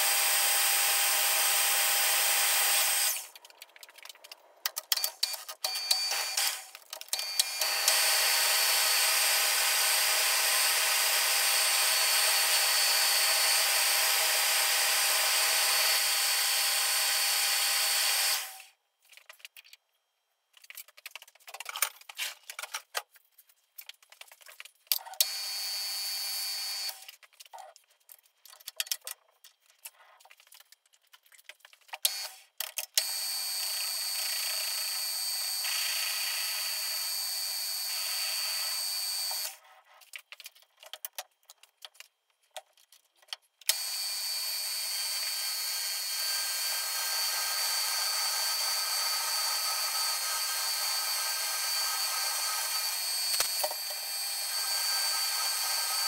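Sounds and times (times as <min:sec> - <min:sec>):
metal lathe running with whine: 0:43.7 - 0:56.0.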